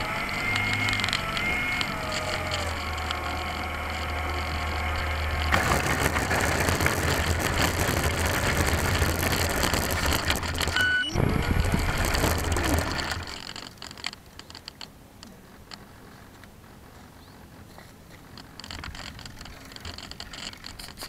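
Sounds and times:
electric motor whining: 0.0 - 13.7
model plane scraping across grass: 0.1 - 13.8.

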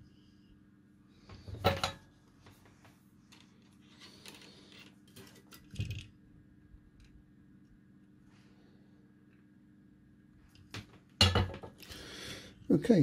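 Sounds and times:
faint steady hum: 0.0 - 13.0
clicks and rustles of tools: 1.6 - 6.1.

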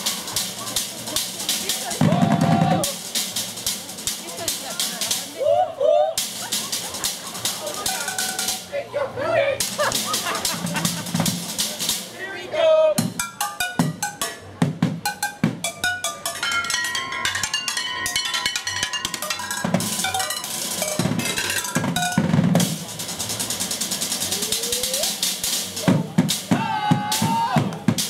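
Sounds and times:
drumsticks beating pots and pans: 13.0 - 22.8
metal pots ringing: 15.1 - 22.3.

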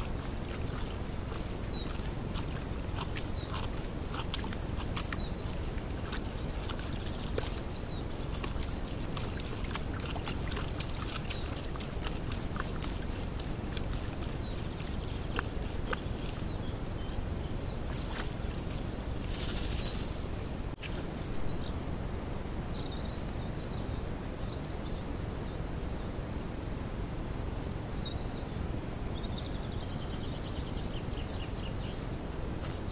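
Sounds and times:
mud and water sloshing: 0.0 - 21.8.

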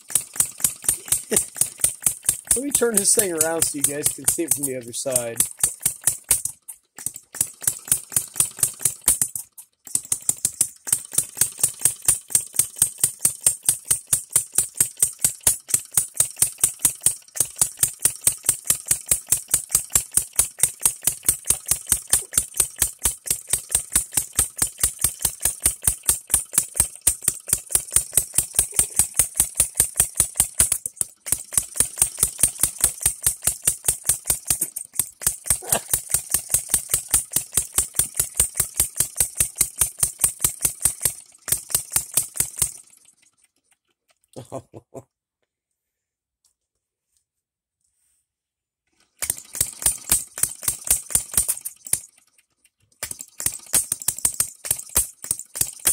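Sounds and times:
model engine popping: 0.0 - 44.4, 48.9 - 55.9.

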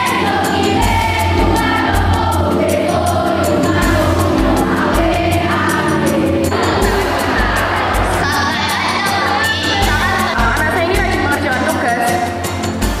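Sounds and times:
children's choir singing: 0.0 - 11.2
accompaniment with steady beat: 0.0 - 13.0.

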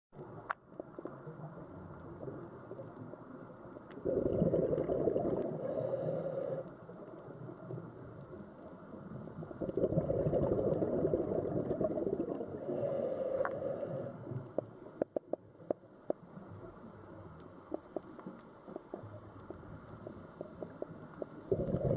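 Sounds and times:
diver bubbling exhalations: 4.0 - 5.9, 9.6 - 13.0, 21.5 - 21.9
regulator hiss: 12.6 - 14.7.

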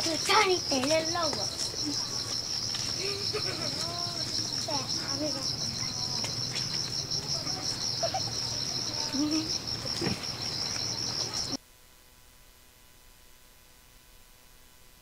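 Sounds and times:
insects chirring: 0.0 - 11.6.

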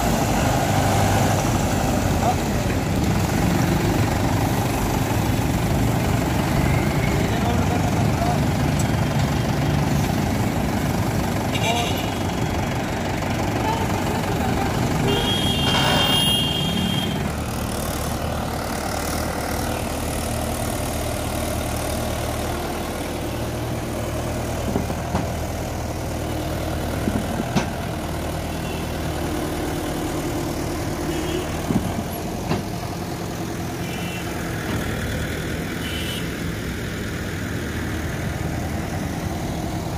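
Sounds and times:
tractor diesel engine under load: 0.0 - 39.9.

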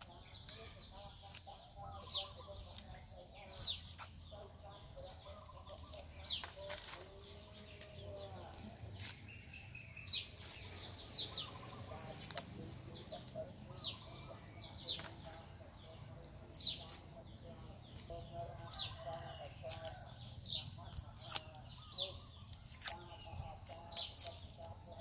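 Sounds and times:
birds chirping: 0.0 - 25.0
faint chickens clucking: 0.0 - 25.0
knife scraping garlic cloves: 0.4 - 4.2, 5.5 - 15.5, 18.0 - 25.0.

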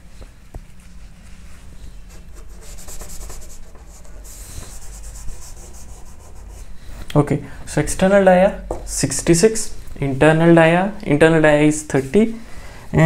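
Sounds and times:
chalk scraping on chalkboard: 2.0 - 6.9.

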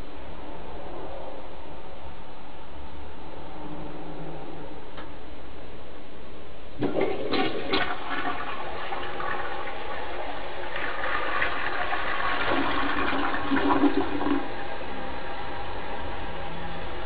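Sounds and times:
toilet flushing: 6.8 - 17.0.

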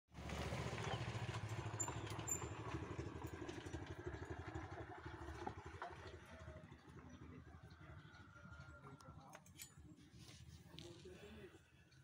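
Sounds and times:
engine pulsing rumble: 0.2 - 9.4.

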